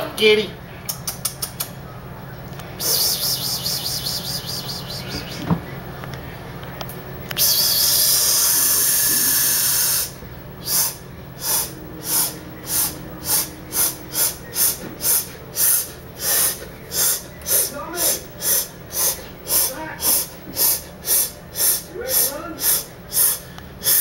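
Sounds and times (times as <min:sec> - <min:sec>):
cat hissing: 0:02.8 - 0:05.6, 0:07.4 - 0:24.0
cat sniffing: 0:07.4 - 0:24.0.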